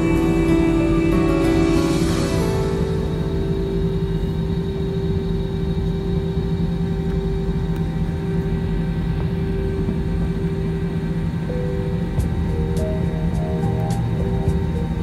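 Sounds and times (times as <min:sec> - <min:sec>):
jet engines idling in cabin: 0:00.0 - 0:15.0.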